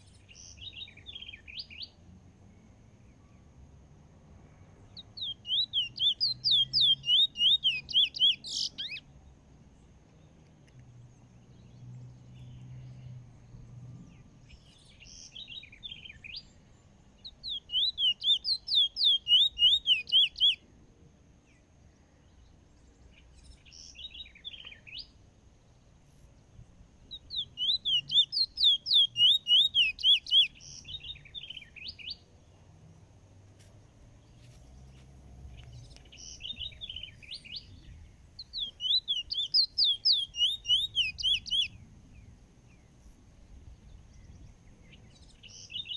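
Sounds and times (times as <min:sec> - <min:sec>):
bird singing sweeping notes: 0:05.0 - 0:09.1, 0:14.1 - 0:20.6, 0:27.0 - 0:32.3, 0:35.5 - 0:42.9, 0:43.9 - 0:45.9.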